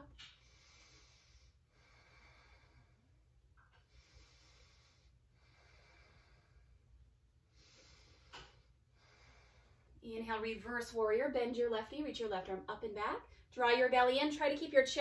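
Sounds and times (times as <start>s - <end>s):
woman breathing slowly: 0.2s - 10.0s.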